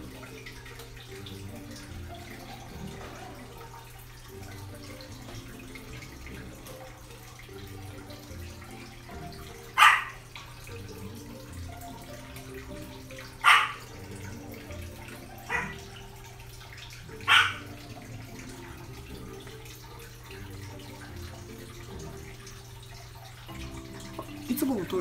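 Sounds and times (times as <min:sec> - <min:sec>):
dog barking: 0:09.8 - 0:10.2, 0:13.4 - 0:13.9, 0:15.5 - 0:15.9, 0:17.2 - 0:17.7.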